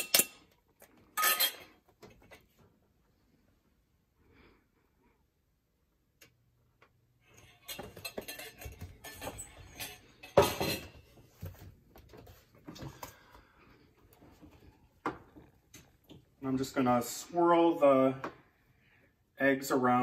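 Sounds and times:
cookware clattering: 0:07.2 - 0:11.2.

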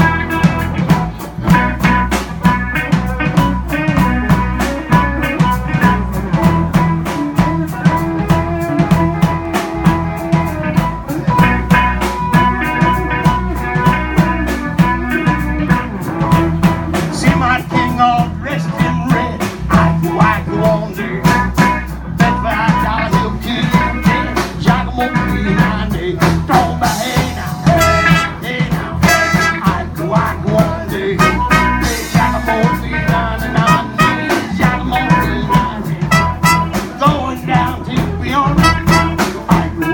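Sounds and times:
harmonica: 0:00.0 - 0:17.1, 0:26.5 - 0:39.9
drum kit beat: 0:00.0 - 0:39.9
electric guitar: 0:00.0 - 0:39.9
live blues band: 0:00.0 - 0:39.9.

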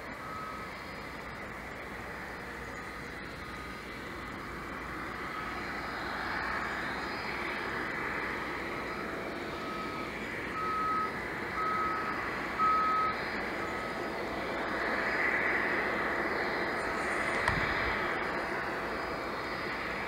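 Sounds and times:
aircraft hum: 0:00.0 - 0:20.0
reversing alarm beeping: 0:00.2 - 0:00.7, 0:08.8 - 0:14.0.

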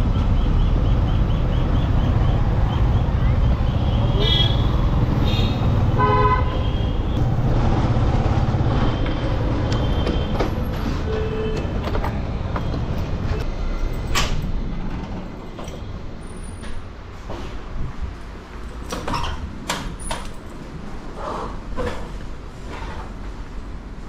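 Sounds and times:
vehicle engine rumbling: 0:00.0 - 0:23.6
car horn honk: 0:04.1 - 0:07.0.

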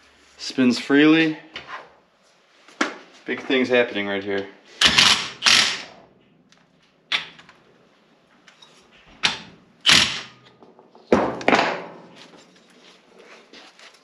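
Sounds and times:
impact driver bursts: 0:04.8 - 0:06.0, 0:09.2 - 0:10.5.

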